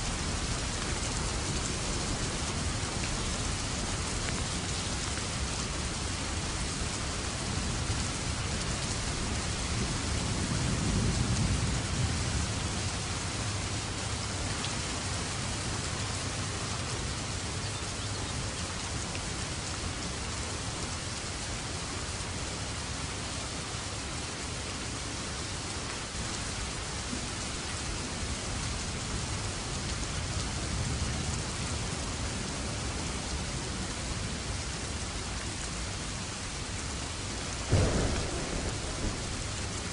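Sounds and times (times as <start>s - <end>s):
low rumble of thunder: 0.0s - 14.4s, 37.6s - 39.9s
heavy rain falling: 0.0s - 39.9s.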